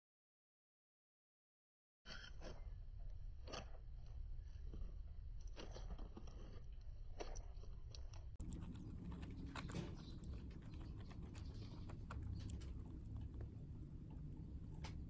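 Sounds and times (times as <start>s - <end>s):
bird beak clicking: 8.4s - 15.0s.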